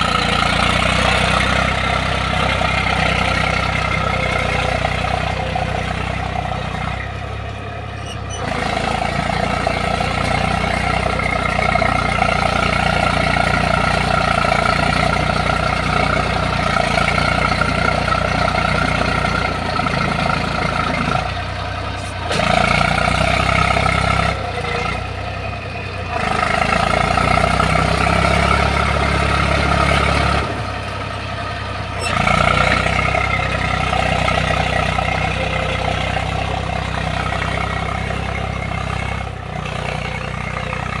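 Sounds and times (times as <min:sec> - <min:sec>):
tractor diesel engine under load: 0:00.0 - 0:41.0.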